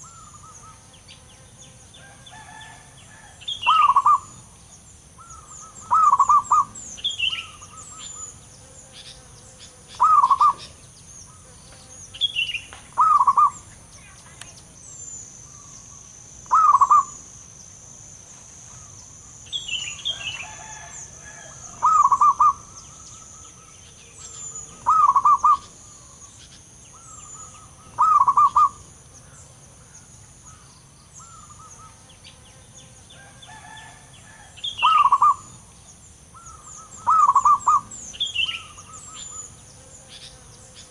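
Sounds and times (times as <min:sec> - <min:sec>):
dove cooing: 0:02.4 - 0:04.5, 0:05.2 - 0:08.3, 0:10.0 - 0:10.8, 0:13.0 - 0:13.7, 0:16.5 - 0:17.2, 0:20.4 - 0:23.7, 0:24.3 - 0:26.2, 0:27.0 - 0:28.9, 0:33.6 - 0:35.6, 0:36.4 - 0:39.4
steady high hiss: 0:03.0 - 0:33.1.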